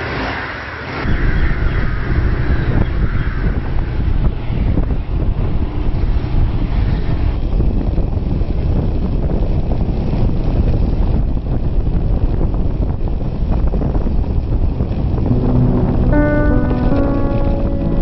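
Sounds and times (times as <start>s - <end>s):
wind buffeting microphone: 1.0s - 15.4s
music notes: 15.3s - 18.0s.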